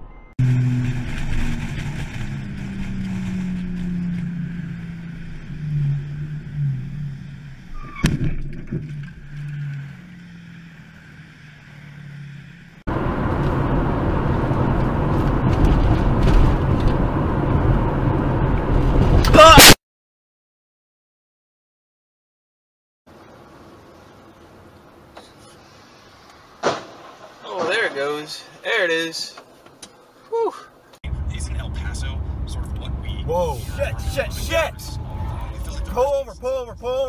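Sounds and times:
car crash: 0.0s - 10.5s, 12.9s - 19.8s, 26.5s - 28.5s
car cabin drone: 0.0s - 19.3s, 30.9s - 37.0s
road and engine noise: 0.0s - 19.3s, 23.1s - 37.0s.

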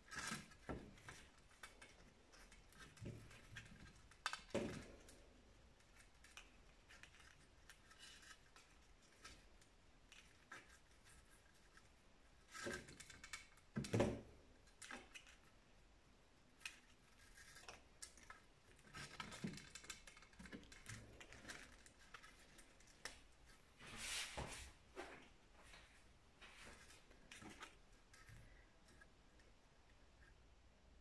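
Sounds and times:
twine rustling: 16.5s - 30.7s.

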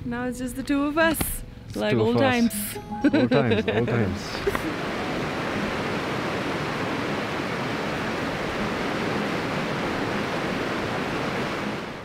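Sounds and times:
river rushing over rapids: 4.3s - 12.0s.

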